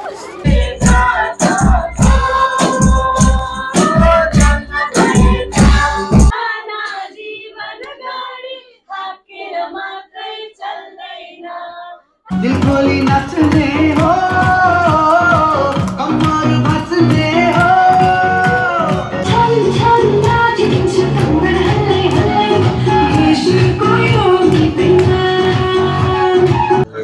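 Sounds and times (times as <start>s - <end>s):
person singing: 0.0s - 6.5s, 11.9s - 27.0s
song with drum beat: 0.2s - 6.4s, 12.3s - 27.0s.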